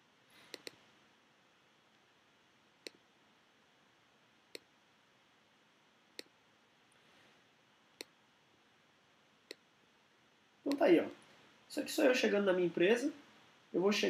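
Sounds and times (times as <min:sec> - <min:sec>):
faint room hiss: 0:00.0 - 0:14.0
mouse button clicks: 0:00.5 - 0:00.8.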